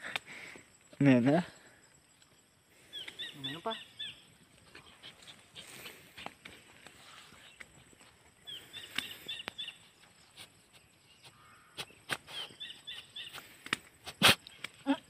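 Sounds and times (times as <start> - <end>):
dog sniffing: 4.7 - 6.6.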